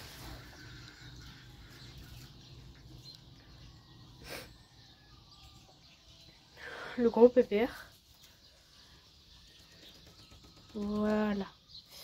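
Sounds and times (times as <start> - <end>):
faint distant bird chirps: 0.0 - 12.0.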